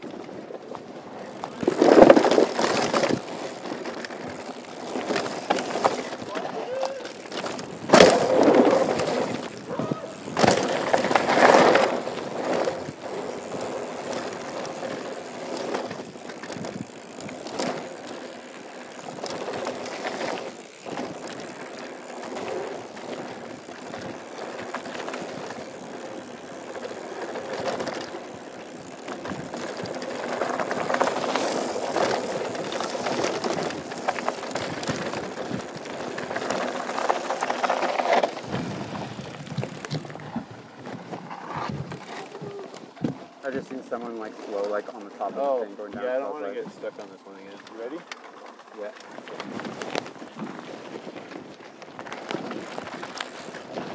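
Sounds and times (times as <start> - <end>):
bike rattling over bumps: 0.0 - 53.9
bike tyres rolling over dirt: 0.0 - 53.9.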